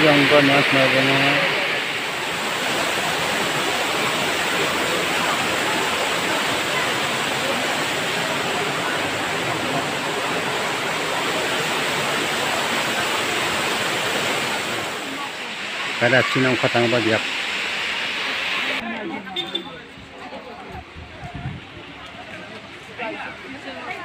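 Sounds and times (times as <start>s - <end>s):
waterfall rushing: 0.0s - 18.8s.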